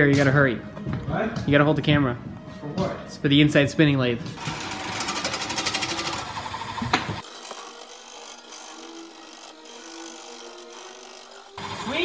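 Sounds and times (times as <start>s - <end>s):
lathe running: 4.4s - 12.0s.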